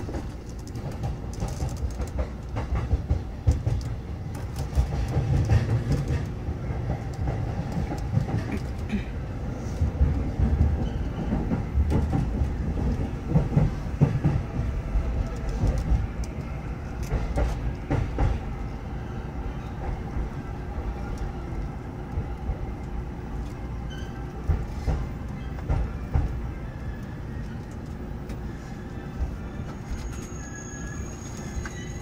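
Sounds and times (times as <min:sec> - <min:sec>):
train rumble: 0:00.0 - 0:32.0.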